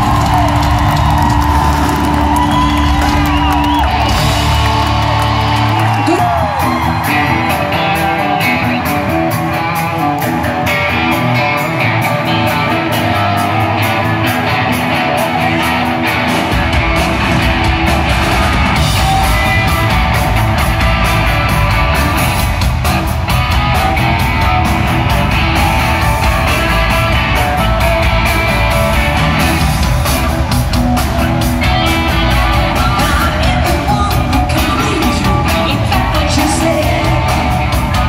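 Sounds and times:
drums with steady beat: 0.0 - 38.0
electric guitar: 0.0 - 38.0
person singing: 31.6 - 38.0.

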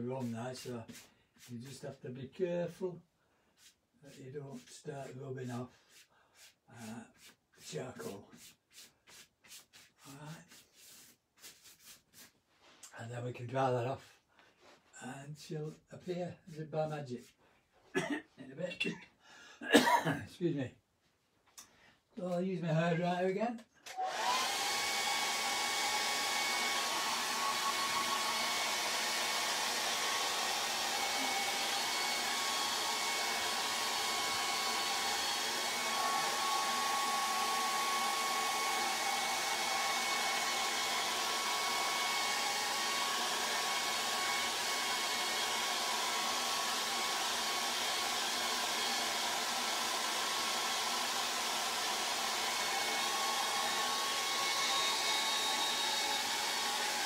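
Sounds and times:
hair dryer blowing air: 23.9 - 57.0.

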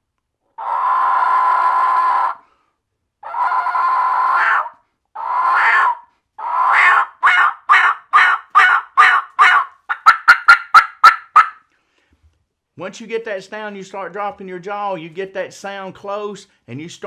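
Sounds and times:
turkey call yelps: 0.6 - 2.4, 3.2 - 11.6.

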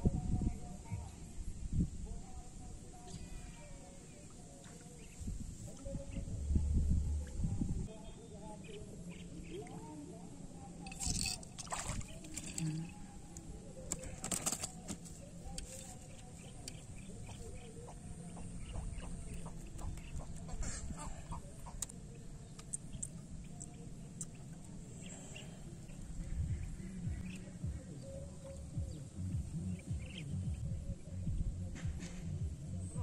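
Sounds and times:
birds chirping and fowl clucking: 14.0 - 21.9.

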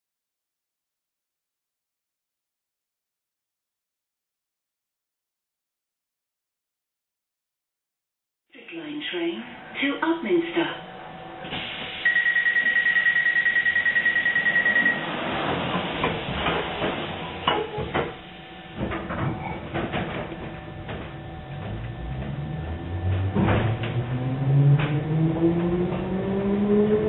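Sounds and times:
train traction motor whine: 9.4 - 27.0
sliding doors shutting: 11.3 - 12.2, 13.9 - 27.0
door-closing warning beeps: 11.6 - 16.1.

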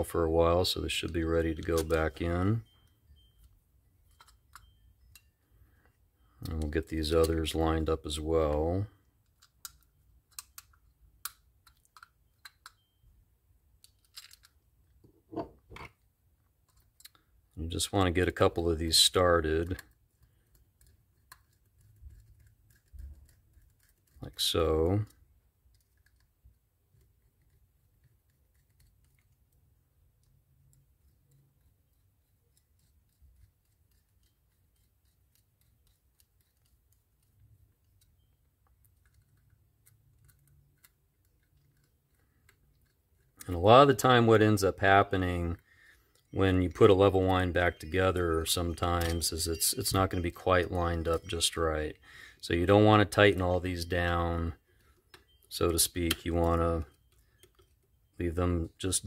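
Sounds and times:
small metal screws clicking: 9.2 - 13.0, 13.8 - 14.6, 17.8 - 44.5, 52.7 - 59.0
screwdriver metallic clicks: 48.7 - 49.3.

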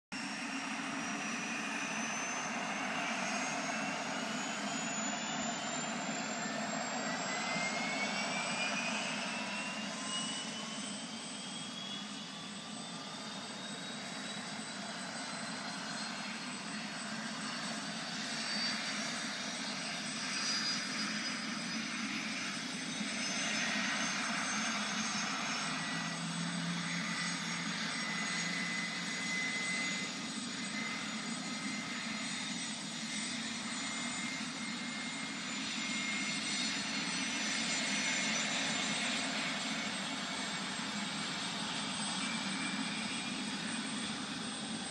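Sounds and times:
helicopter turbine whine: 0.1 - 44.9.

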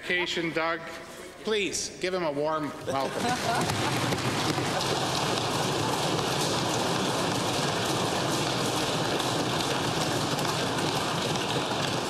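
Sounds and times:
crowd applauding: 3.0 - 12.0.

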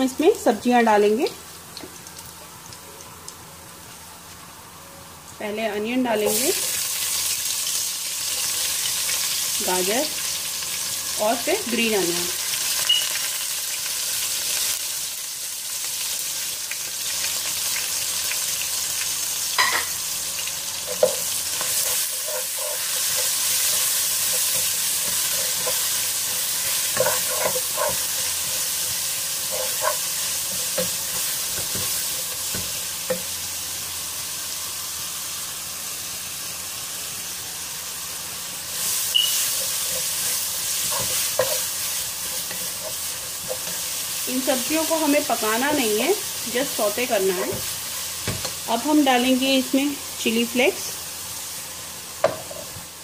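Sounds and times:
vegetables sizzling in hot oil: 0.0 - 53.0
wooden spatula scraping pot: 20.9 - 32.7.

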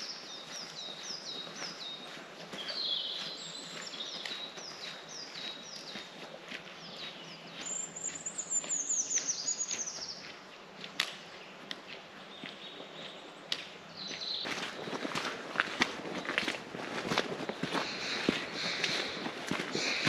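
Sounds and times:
songbirds chirping: 0.0 - 20.0.

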